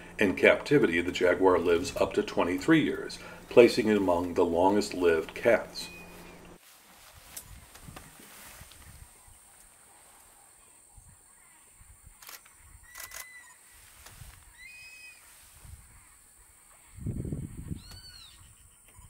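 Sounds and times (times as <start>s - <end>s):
camera shutter clicks: 12.2s - 13.6s
chirping bird call: 15.9s - 19.0s.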